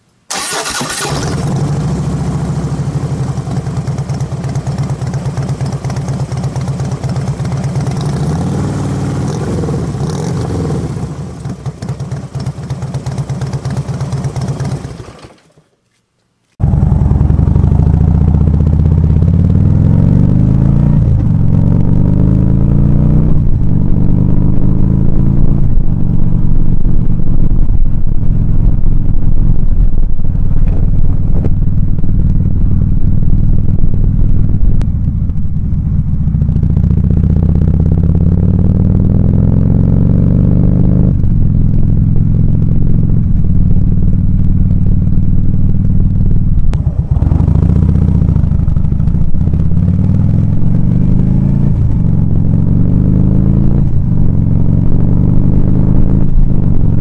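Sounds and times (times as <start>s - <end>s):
loud motorcycle engine revving: 0.3s - 12.2s, 16.6s - 26.7s, 36.0s - 43.2s, 46.7s - 57.0s.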